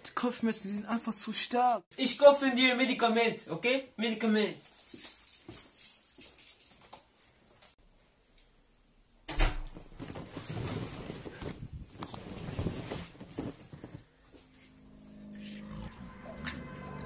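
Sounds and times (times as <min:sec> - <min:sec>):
rustling and shuffling: 0:04.6 - 0:07.8, 0:09.8 - 0:15.2
low steady musical tone: 0:14.1 - 0:17.0.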